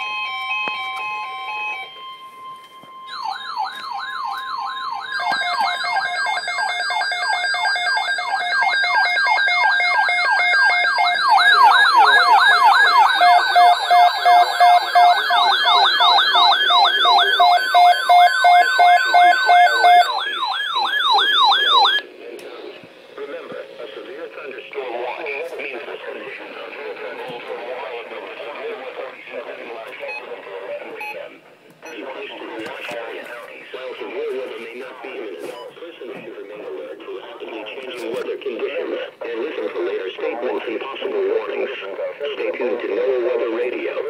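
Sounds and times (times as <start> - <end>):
rapid beeping: 0.0 - 22.1, 23.2 - 32.6
steady high alarm tone: 0.0 - 22.1, 31.8 - 32.3
warbling siren alarms: 0.0 - 22.1.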